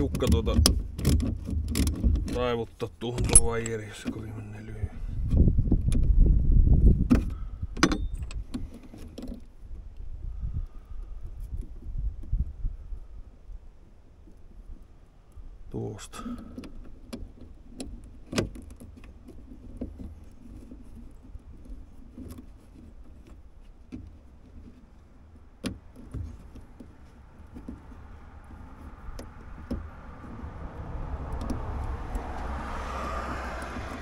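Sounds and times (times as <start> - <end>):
metallic clicks and rattles: 0.0 - 4.3
steady low rumble: 26.8 - 34.0.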